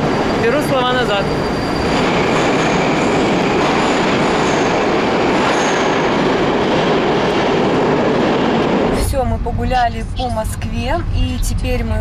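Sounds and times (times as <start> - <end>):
faint high squeals: 0.0 - 3.2
wheels rumbling on rail: 0.0 - 12.0.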